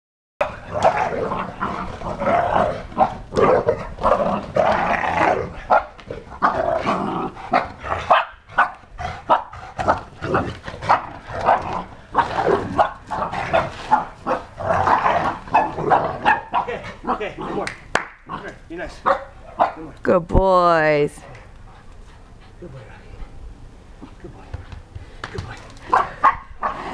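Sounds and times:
dogs growling: 0.4s - 17.7s, 25.4s - 26.9s
dogs barking: 5.2s - 6.6s, 7.5s - 10.1s, 10.8s - 17.7s, 18.3s - 20.0s, 25.8s - 26.9s.

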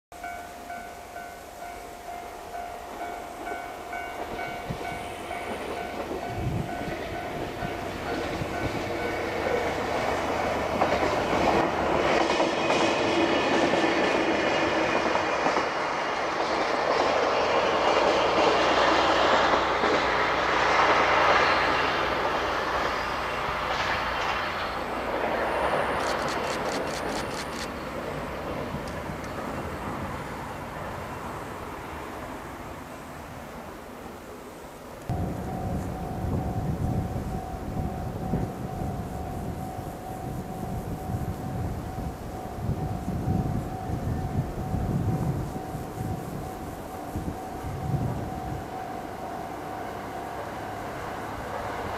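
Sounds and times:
diesel train passing: 0.1s - 51.9s
wheels clacking over rail joints: 2.0s - 31.8s.

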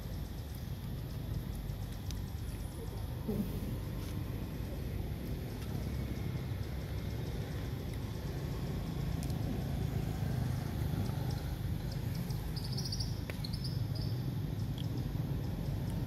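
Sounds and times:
low outdoor rumble: 0.0s - 16.0s
faint high chirps: 11.1s - 14.2s.

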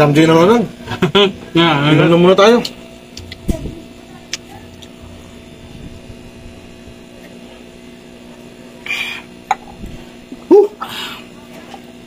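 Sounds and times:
low electrical hum: 0.0s - 12.0s
man exhaling: 8.8s - 9.3s, 10.8s - 11.3s.

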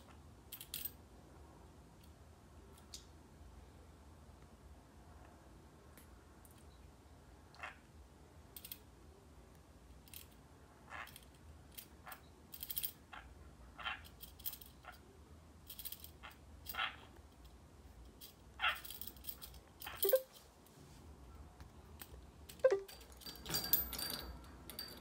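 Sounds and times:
metallic clicks and jingles: 17.4s - 20.4s, 22.0s - 25.0s
parakeet chirping: 19.8s - 20.3s.

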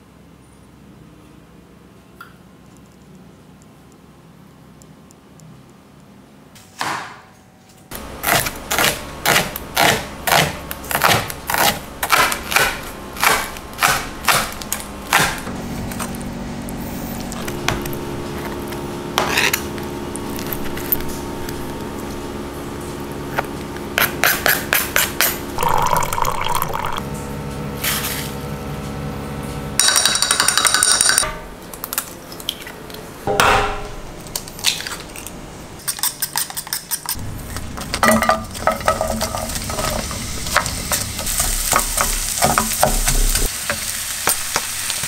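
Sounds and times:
steady hum: 3.7s - 30.6s, 37.1s - 43.5s
knife chopping on cutting board: 8.2s - 15.5s, 23.9s - 25.4s.

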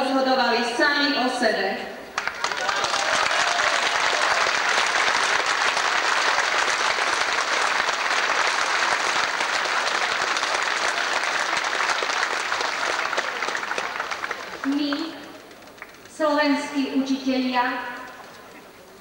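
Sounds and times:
large crowd applauding: 2.1s - 16.2s.

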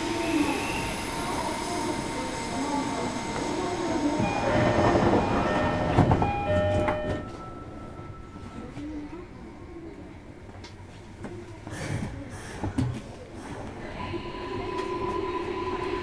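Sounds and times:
electric train running: 0.0s - 7.3s.

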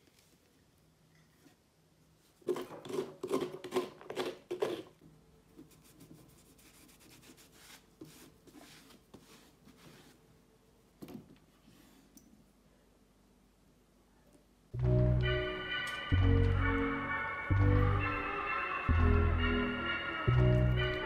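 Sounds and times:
scraping inside a pumpkin: 2.4s - 5.0s.

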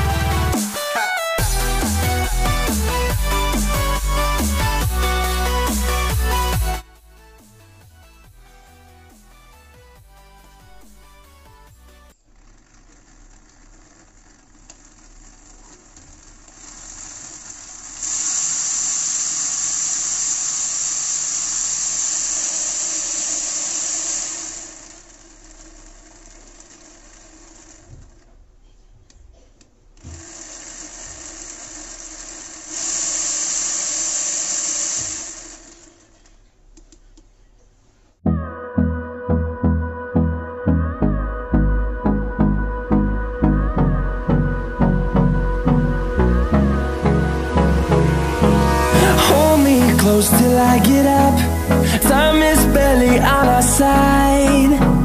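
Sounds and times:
small motors whirring: 12.4s - 28.3s, 30.0s - 36.3s
propeller rushing air: 45.7s - 55.0s.

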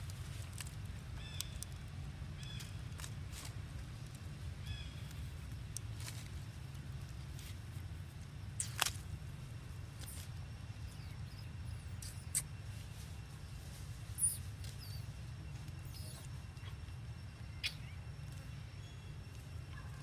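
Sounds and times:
sharp crackle: 0.0s - 7.6s, 8.5s - 9.2s
rustling of dry leaves: 0.0s - 20.0s
steady low rumble: 0.0s - 20.0s.

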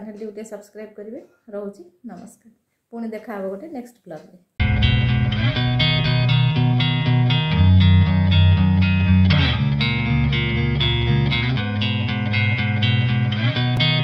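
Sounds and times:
guitar music with beat: 4.6s - 14.0s.

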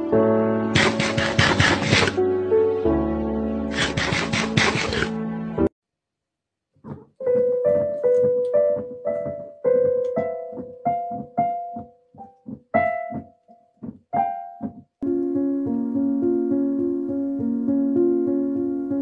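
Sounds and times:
keyboard single piano notes: 6.8s - 19.0s.

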